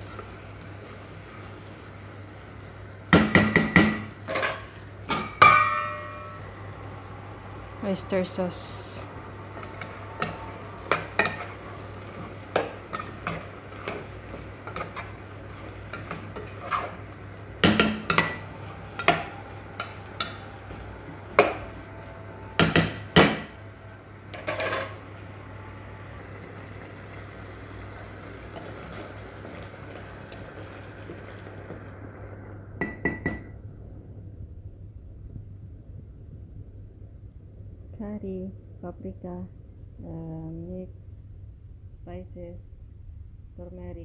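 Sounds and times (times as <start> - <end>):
spoon stirring in cooking pot: 9.6 - 18.4.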